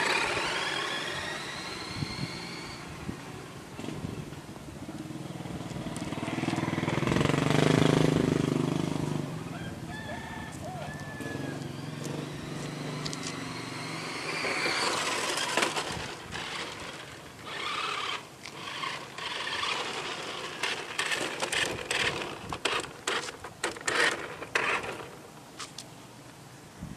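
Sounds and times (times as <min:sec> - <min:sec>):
rc car electric motor buzz: 0:00.0 - 0:03.2, 0:11.6 - 0:25.3.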